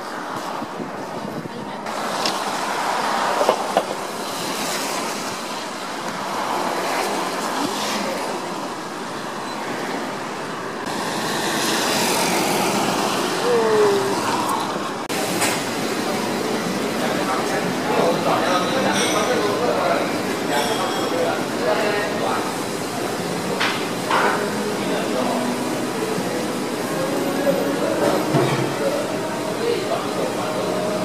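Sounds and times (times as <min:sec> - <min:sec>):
road noise inside moving car: 0:00.0 - 0:18.5.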